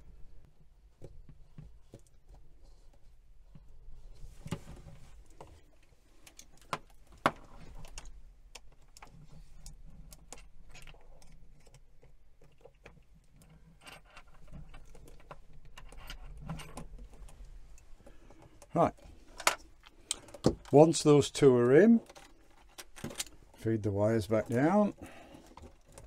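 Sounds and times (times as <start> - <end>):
screwdriver clicking and scraping metal: 7.8 - 17.8.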